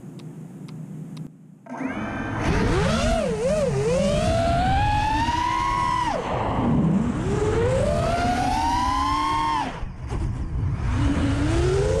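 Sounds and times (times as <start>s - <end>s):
quadcopter motors whining: 1.6s - 12.0s.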